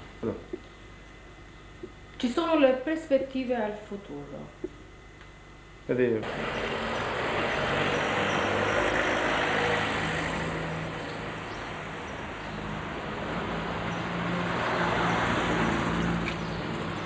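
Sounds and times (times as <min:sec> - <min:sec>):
car engines passing: 0:06.2 - 0:17.0.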